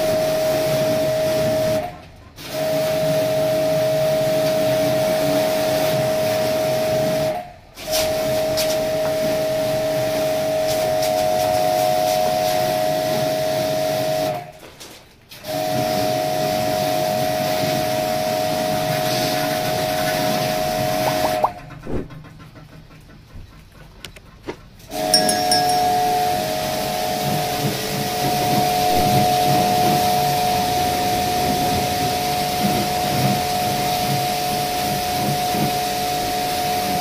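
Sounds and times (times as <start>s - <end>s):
pressure washer pump whine: 15.4s - 21.5s, 24.9s - 37.0s.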